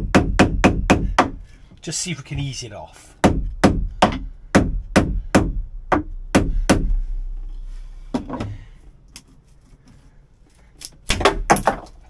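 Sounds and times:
hammer knocking wooden block: 0:00.0 - 0:01.4, 0:03.2 - 0:07.0.

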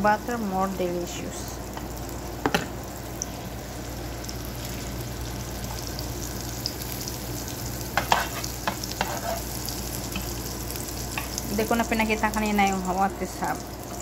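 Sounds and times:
butter sizzling in a pan: 0:00.0 - 0:14.0
spatula scraping a pan: 0:08.0 - 0:09.6.

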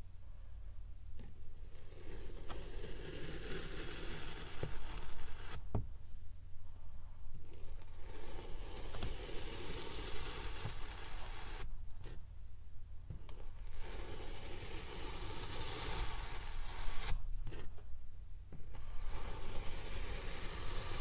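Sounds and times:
soft knock: 0:05.7 - 0:06.0.

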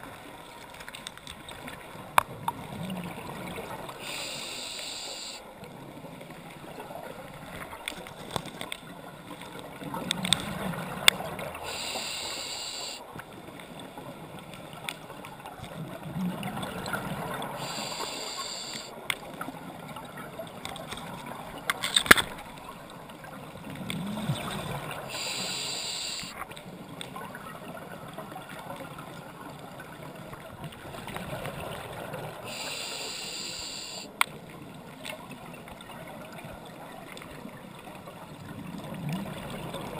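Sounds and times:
regulator hiss on inhale: 0:04.0 - 0:05.4, 0:11.6 - 0:13.0, 0:17.6 - 0:18.9, 0:25.1 - 0:26.4, 0:32.5 - 0:34.1
diver exhaling bubbles: 0:23.8 - 0:25.4.

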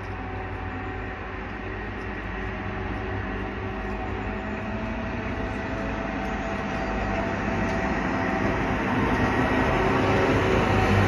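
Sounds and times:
diesel engine drone: 0:00.0 - 0:11.0.

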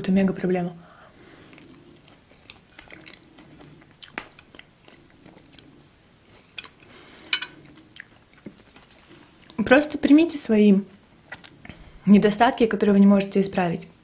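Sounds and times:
soft chewing: 0:01.0 - 0:09.6, 0:10.9 - 0:12.0.

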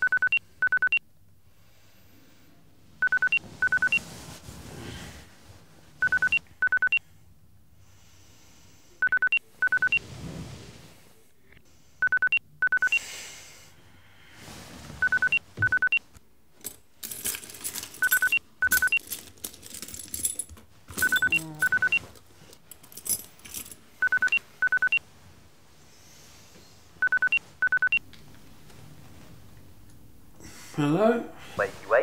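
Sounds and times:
mobile phone ringing: 0:00.0 - 0:01.0, 0:03.0 - 0:04.0, 0:06.0 - 0:07.0, 0:09.0 - 0:10.0, 0:12.0 - 0:13.0, 0:15.0 - 0:16.0, 0:18.0 - 0:19.0, 0:21.0 - 0:22.1, 0:24.0 - 0:25.0, 0:27.0 - 0:28.0.

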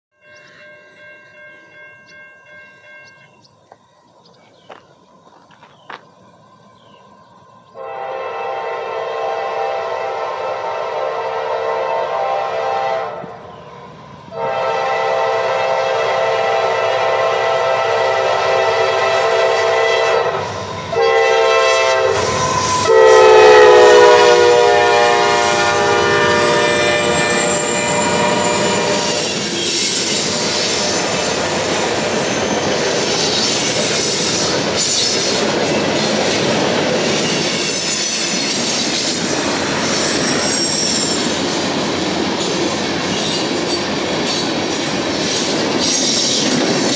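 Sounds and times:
locomotive horn blasts: 0:07.8 - 0:13.4, 0:14.3 - 0:31.6
faint wheel squeal: 0:37.0 - 0:41.4.

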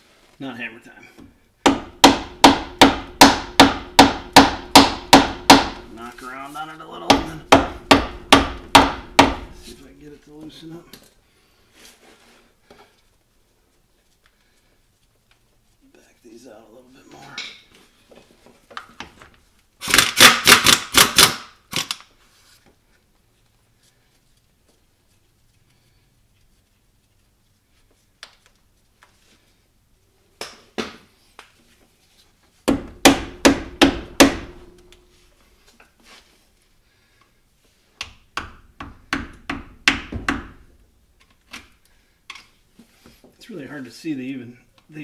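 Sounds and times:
hammer strikes on metal: 0:01.6 - 0:05.8, 0:07.0 - 0:09.6, 0:32.7 - 0:34.8.

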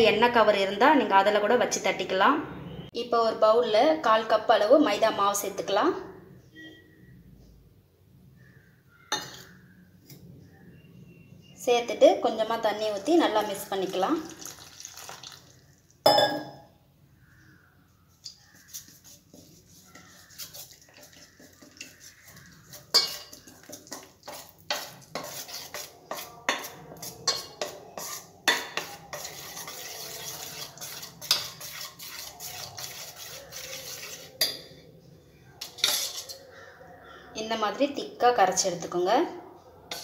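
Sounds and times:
wet stirring of batter: 0:13.0 - 0:16.0, 0:18.1 - 0:34.8
spoon clinking against steel bowl: 0:16.1 - 0:16.6, 0:20.0 - 0:34.8, 0:35.6 - 0:36.4.

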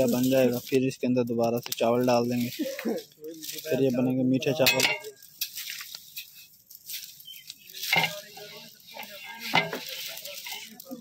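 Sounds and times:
metal ladle scraping a pot: 0:07.8 - 0:10.8.

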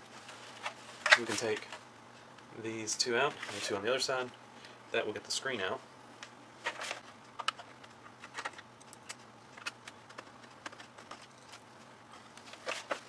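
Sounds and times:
plastic and metal parts handled: 0:06.6 - 0:13.0.

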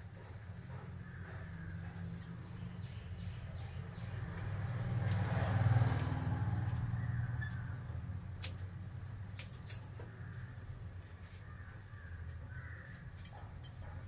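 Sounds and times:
scissors snipping hair: 0:04.2 - 0:06.9.

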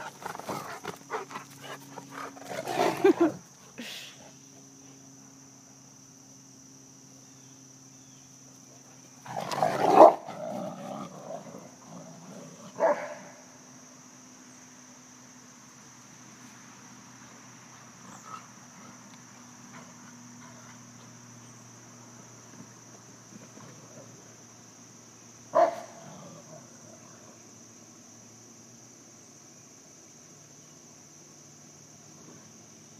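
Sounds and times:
high insect buzz: 0:00.0 - 0:32.9
dogs barking: 0:12.7 - 0:13.3, 0:25.5 - 0:26.0.

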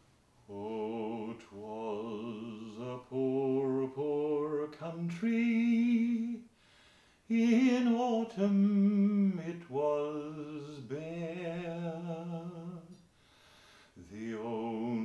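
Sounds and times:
man singing unaccompanied: 0:00.4 - 0:06.5, 0:07.2 - 0:13.1, 0:14.0 - 0:15.0.

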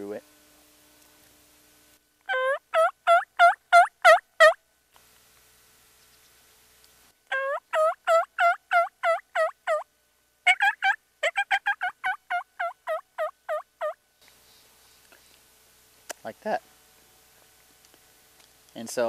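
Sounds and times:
turkey call yelps: 0:02.3 - 0:04.6, 0:07.3 - 0:14.0.

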